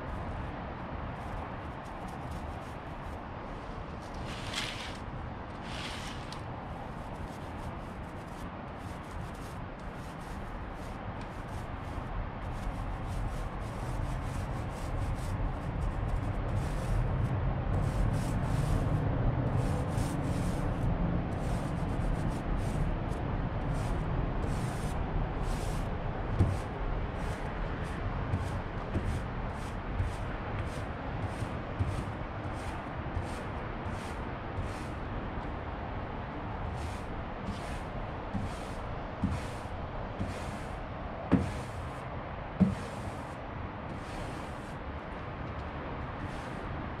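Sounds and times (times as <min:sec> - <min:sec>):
paint roller swishing on metal: 0:04.0 - 0:06.5, 0:23.7 - 0:35.0, 0:36.6 - 0:42.0, 0:42.6 - 0:44.8, 0:46.2 - 0:46.7.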